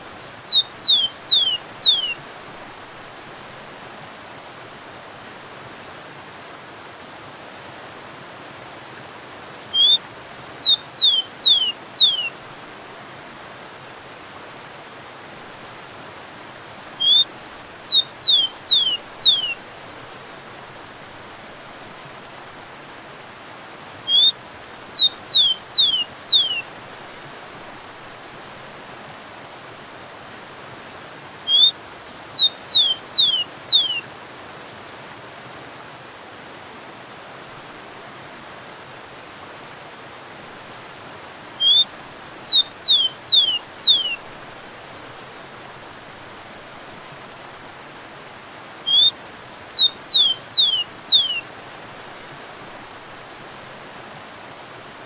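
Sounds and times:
sparrow singing: 0.0s - 2.2s, 9.8s - 12.3s, 17.0s - 19.6s, 24.1s - 26.6s, 31.5s - 34.0s, 41.6s - 44.2s, 48.9s - 51.4s.

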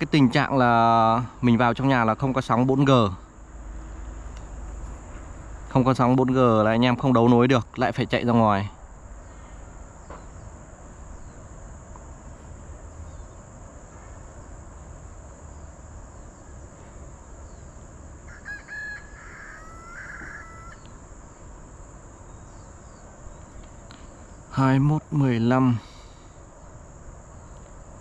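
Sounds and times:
high insect buzz: 8.5s - 28.0s
rooster crowing: 18.2s - 21.0s.

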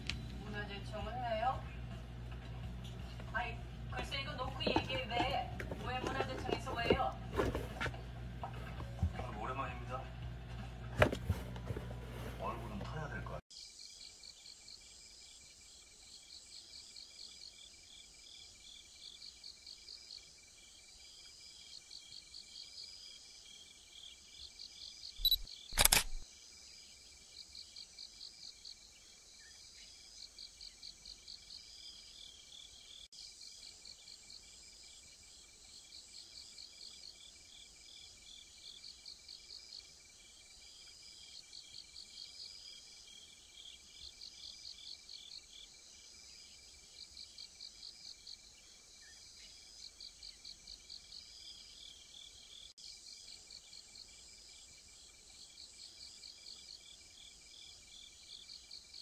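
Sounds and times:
crickets chirping: 13.5s - 59.0s.

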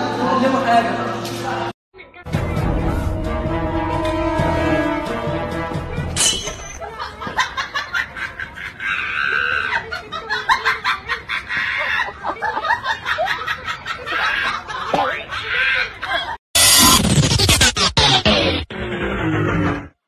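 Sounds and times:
people laughing: 6.8s - 16.4s.

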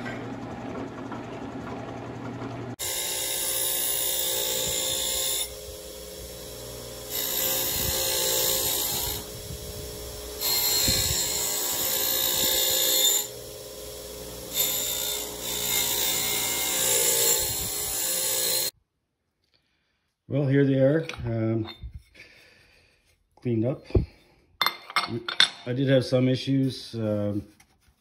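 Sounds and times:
bench grinder running: 0.0s - 18.7s.

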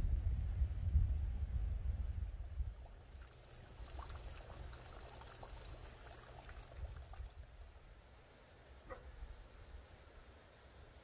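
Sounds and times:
low rumble on microphone: 0.0s - 8.0s
faint stream rushing: 2.8s - 11.0s.

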